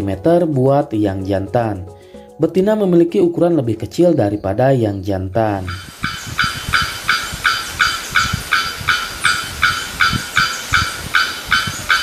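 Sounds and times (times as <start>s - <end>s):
bird calling repeated short notes: 5.7s - 12.0s.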